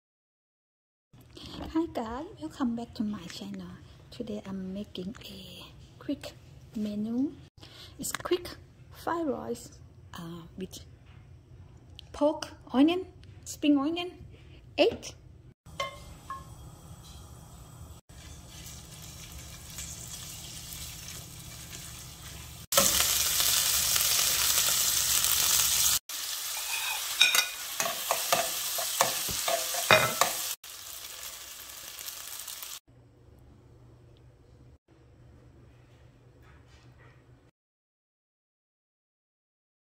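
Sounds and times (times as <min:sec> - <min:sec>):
oil sizzling in frying pan: 0:15.8 - 0:32.8
utensil scraping against pan: 0:26.6 - 0:30.5.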